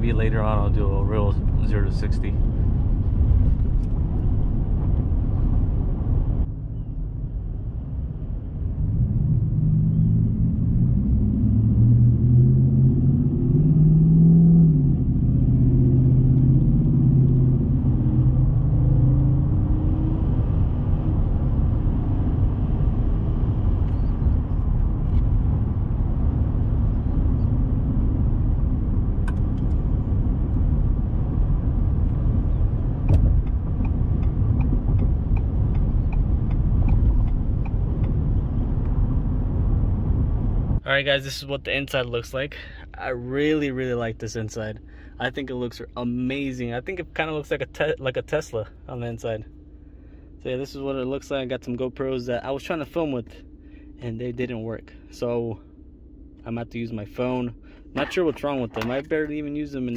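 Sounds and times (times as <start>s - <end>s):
tyre and road rumble: 0.0s - 40.8s, 57.2s - 59.9s
truck engine accelerating: 7.7s - 42.2s.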